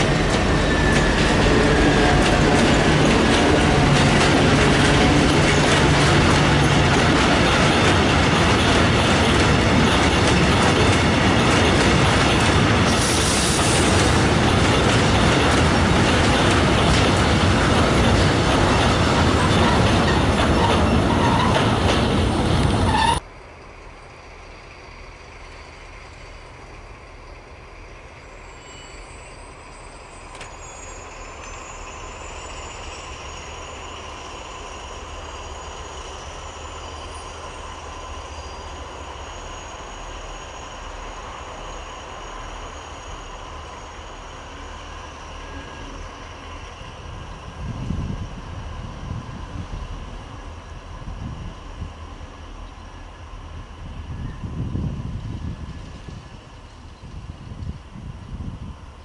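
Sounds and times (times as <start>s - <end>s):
diesel locomotives running slowly: 0.0s - 59.0s
freight train wheels rushing on rail: 0.0s - 59.0s
faint thin wheel squeal: 22.9s - 23.2s, 28.3s - 34.8s.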